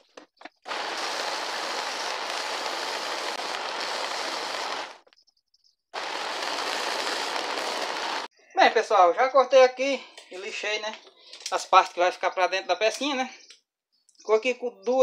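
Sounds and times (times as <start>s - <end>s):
belt sander sanding wood: 0.7s - 5.0s, 6.0s - 8.3s.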